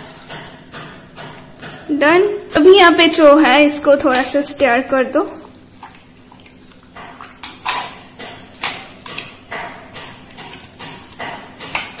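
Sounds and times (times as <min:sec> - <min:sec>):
spoon knocking and scraping pot: 0:00.0 - 0:01.9, 0:07.0 - 0:12.0.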